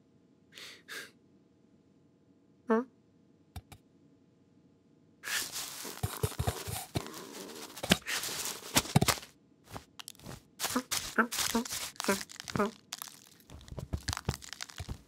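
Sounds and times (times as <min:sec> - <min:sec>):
cloth sack rustling: 0:05.2 - 0:15.0.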